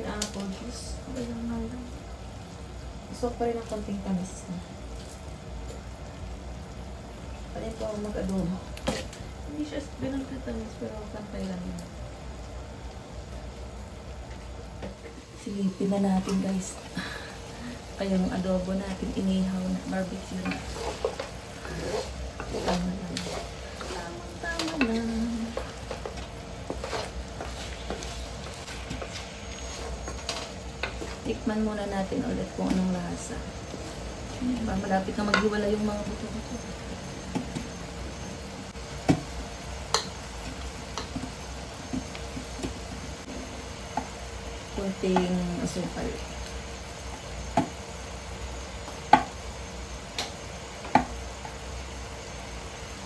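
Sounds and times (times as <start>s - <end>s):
hot pan hissing: 0.0s - 53.0s
sauce sizzling and bubbling: 0.0s - 53.0s
wooden spatula scraping wok: 14.3s - 48.0s.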